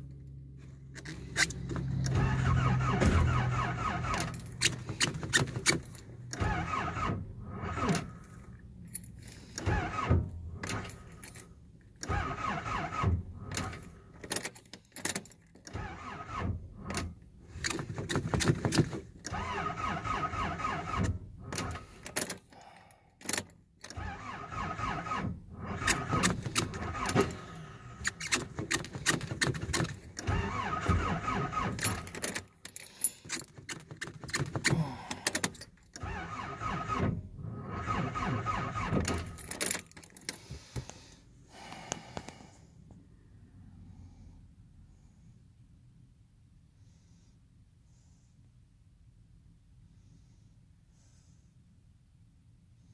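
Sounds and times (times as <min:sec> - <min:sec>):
starter motor cranking engine: 0:01.3 - 0:08.2, 0:09.4 - 0:11.1, 0:12.0 - 0:14.0, 0:15.6 - 0:22.1, 0:23.9 - 0:32.5, 0:33.3 - 0:39.8
key ring jangling: 0:39.2 - 0:40.4.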